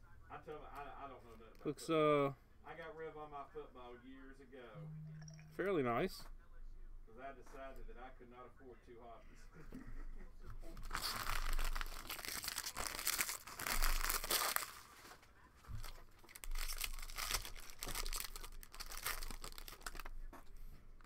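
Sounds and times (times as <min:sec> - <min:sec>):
plastic wrappers tearing and crinkling: 0:10.8 - 0:15.2, 0:15.8 - 0:20.2.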